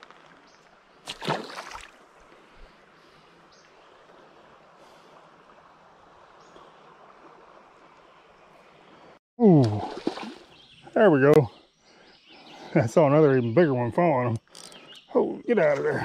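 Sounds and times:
fish splashing into water: 1.0s - 2.0s, 9.6s - 10.5s
creek water rushing: 1.0s - 10.6s.

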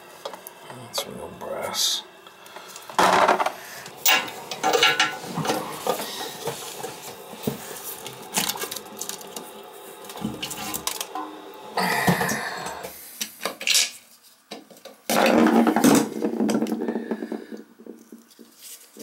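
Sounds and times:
metal tools clinking: 4.0s - 5.2s.

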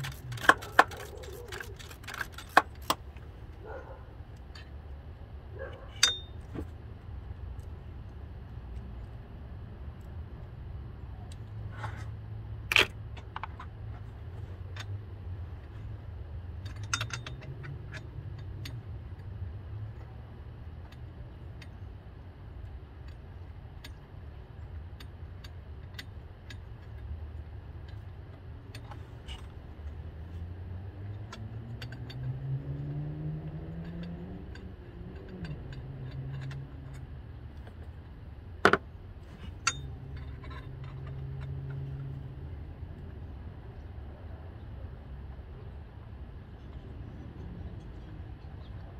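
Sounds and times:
vehicle engine rumble: 0.0s - 48.9s
metallic clinks of hand tools: 6.0s - 6.4s.

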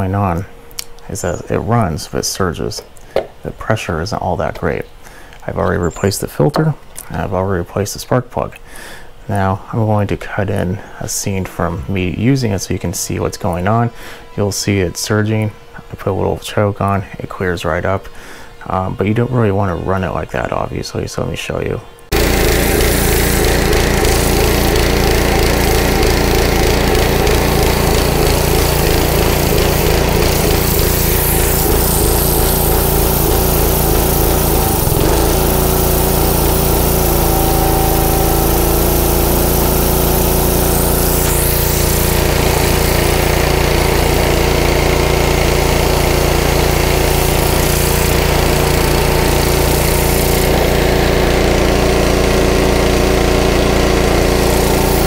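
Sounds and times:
pressure washer engine surging: 22.1s - 55.0s
spray hissing on concrete: 22.1s - 55.0s.

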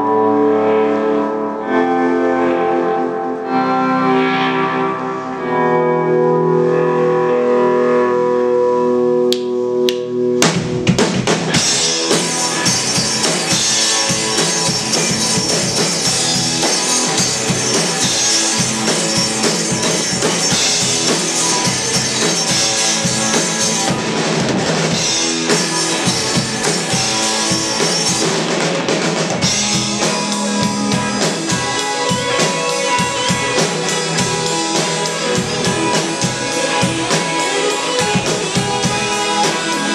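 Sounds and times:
electric guitar chords: 0.0s - 39.9s
rock band playing: 0.0s - 39.9s
drums beating: 9.9s - 39.9s.

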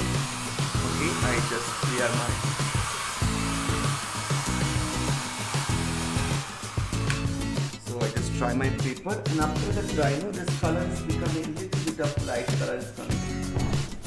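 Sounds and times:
hair dryer blowing: 0.0s - 7.9s
background music: 0.0s - 14.0s.

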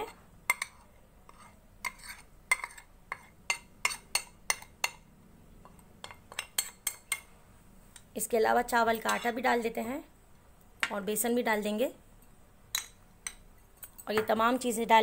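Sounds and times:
spoons clinking against bowls: 5.7s - 7.3s, 8.9s - 9.4s.

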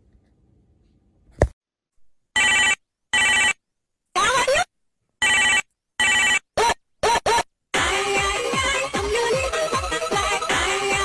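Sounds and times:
telephone ringing: 2.4s - 3.6s, 5.2s - 6.4s.

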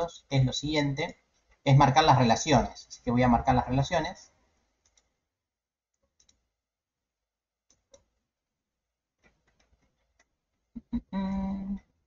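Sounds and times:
computer mouse clicks: 4.8s - 5.2s, 6.0s - 6.4s, 7.7s - 8.1s, 9.2s - 10.4s.

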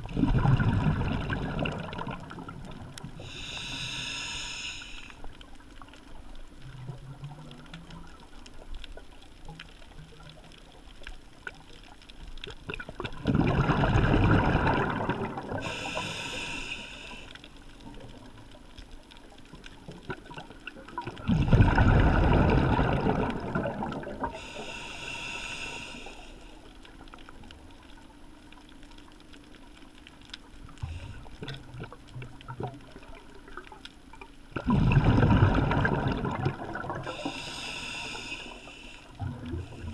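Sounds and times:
exhaled bubbles rushing underwater: 0.0s - 3.8s, 9.7s - 16.4s, 19.2s - 24.8s, 30.6s - 39.9s
hissing inhale: 3.2s - 5.2s, 15.6s - 17.5s, 24.3s - 26.7s, 37.0s - 39.9s.

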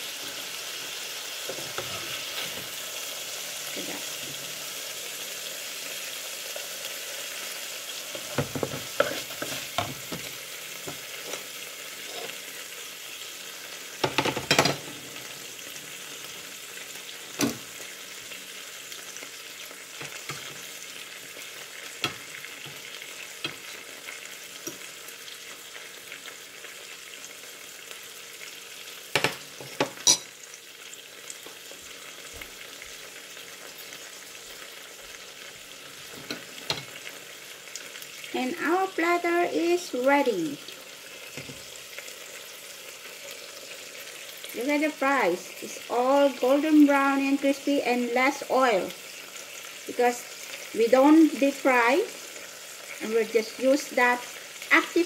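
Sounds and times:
meat sizzling in frying pan: 0.0s - 55.0s.

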